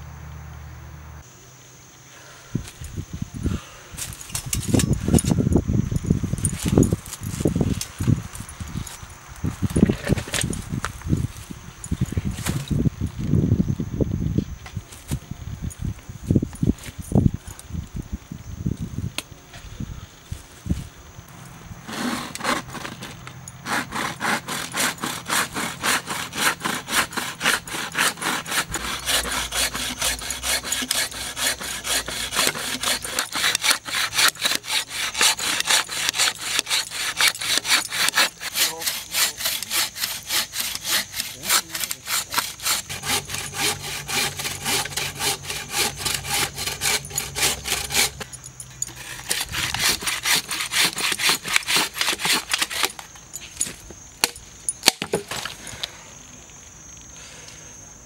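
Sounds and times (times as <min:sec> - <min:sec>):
hand saw cutting wood: 0:21.8 - 0:53.0.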